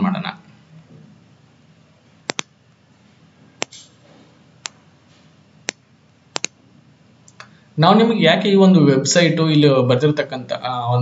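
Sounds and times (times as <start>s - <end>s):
mouse button clicking: 2.3s - 2.5s, 6.4s - 6.6s.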